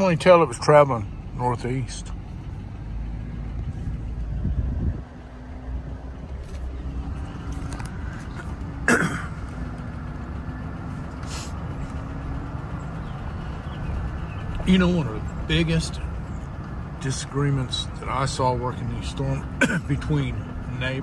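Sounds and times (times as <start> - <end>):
truck engine and tyres rumbling: 0.0 - 21.0.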